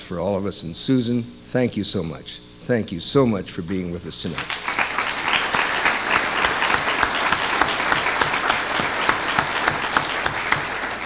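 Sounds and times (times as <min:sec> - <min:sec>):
audience applauding: 0:04.4 - 0:11.0.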